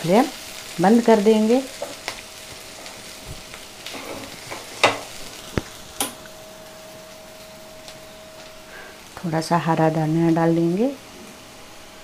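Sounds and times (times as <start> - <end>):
soft sizzling: 0.0 - 12.0
spatula scraping frying pan: 3.9 - 5.2.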